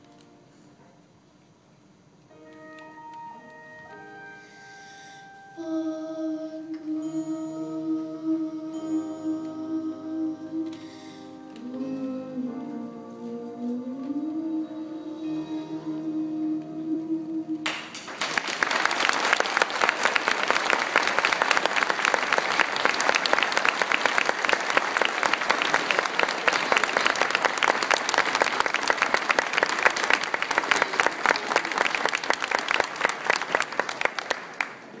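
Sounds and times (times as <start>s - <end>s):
audience applause: 17.7s - 35.0s.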